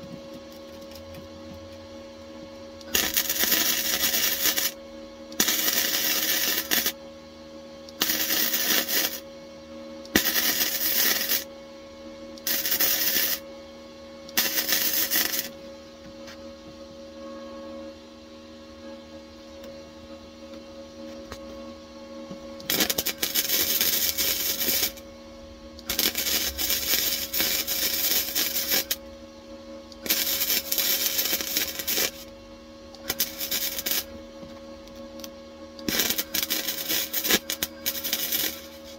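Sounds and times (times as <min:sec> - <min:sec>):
steady hum: 0:00.0 - 0:18.0, 0:18.6 - 0:38.9
welder crackling and sizzling: 0:02.8 - 0:04.8, 0:05.4 - 0:07.0, 0:07.9 - 0:09.3, 0:10.1 - 0:11.5, 0:12.4 - 0:13.4, 0:14.3 - 0:15.6, 0:22.6 - 0:25.1, 0:25.8 - 0:29.1, 0:30.0 - 0:32.4, 0:33.0 - 0:38.9.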